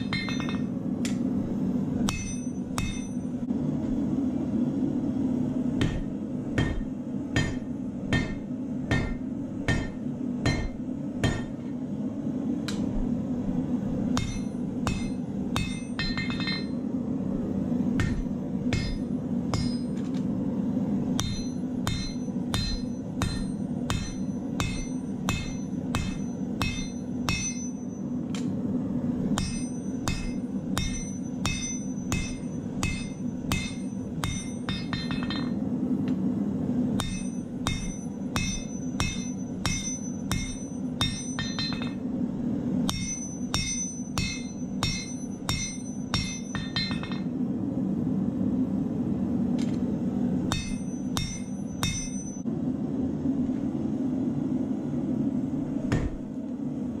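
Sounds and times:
hammer blows on anvil ringing: 0.0s - 0.7s, 2.1s - 3.4s, 5.8s - 11.6s, 14.2s - 16.8s, 18.0s - 20.0s, 21.2s - 28.2s, 29.4s - 35.6s, 37.0s - 42.0s, 42.9s - 47.3s, 50.5s - 52.5s
gas forge burner roar: 0.0s - 57.0s.

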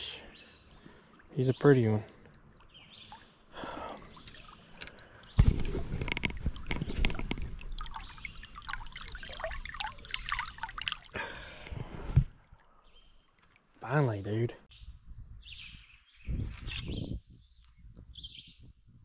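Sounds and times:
creek water splashing: 0.4s - 14.3s.

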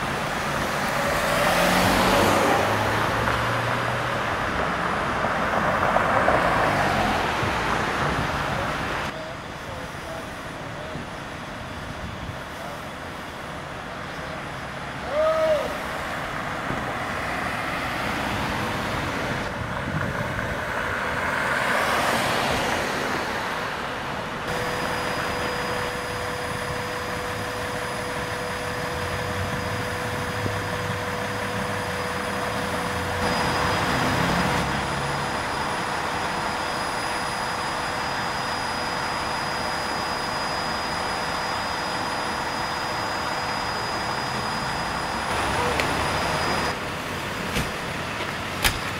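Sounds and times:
fire engines idling with whine: 0.0s - 48.9s.

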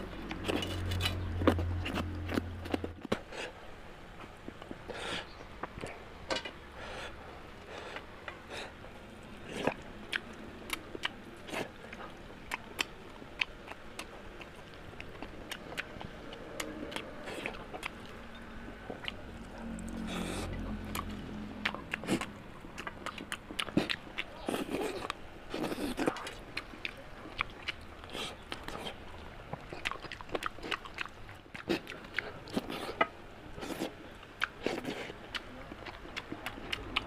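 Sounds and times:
low steady hum: 0.0s - 37.0s
chewing with wet mouth clicks: 9.4s - 37.0s.

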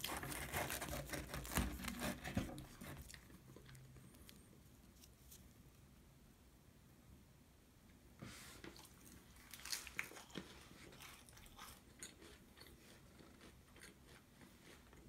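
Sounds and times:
bread crust crunching: 0.0s - 4.4s.

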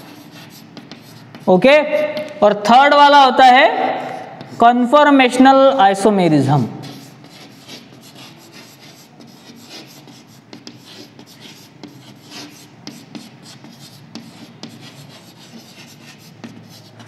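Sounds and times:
chalk writing on chalkboard: 0.0s - 2.4s, 4.0s - 4.8s, 6.8s - 17.0s.

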